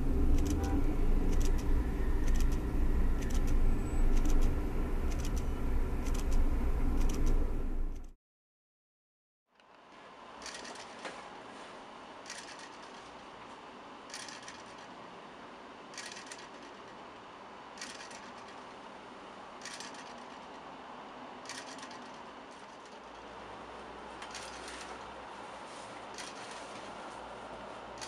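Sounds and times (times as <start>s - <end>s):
clock motor clicking bursts: 0.2s - 0.7s, 1.3s - 2.6s, 3.2s - 6.4s, 7.0s - 8.1s, 14.1s - 14.9s, 15.9s - 16.9s, 17.8s - 18.7s, 19.6s - 20.4s, 21.4s - 23.0s.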